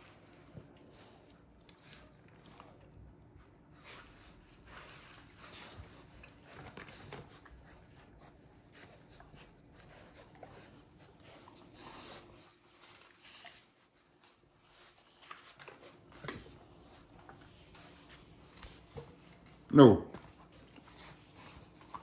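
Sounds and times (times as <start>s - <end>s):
puppies scuffling and rustling: 0.0s - 22.0s.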